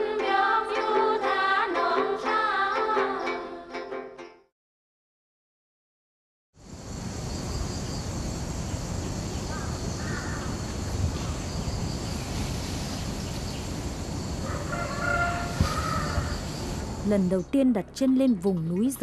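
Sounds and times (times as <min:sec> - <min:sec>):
steady hiss: 0:06.6 - 0:17.0
bird calling: 0:09.0 - 0:11.5.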